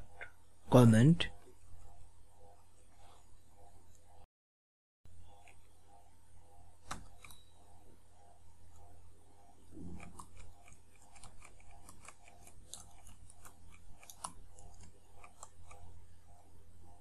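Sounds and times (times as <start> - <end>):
steady low hum: 0.0 - 4.3, 5.1 - 17.0.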